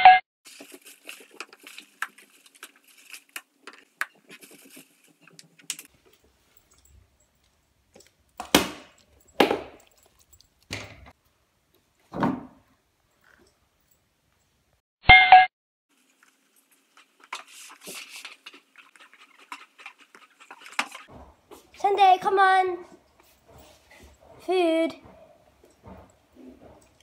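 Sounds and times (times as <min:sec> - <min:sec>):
plastic bag rustling: 0:00.5 - 0:05.9.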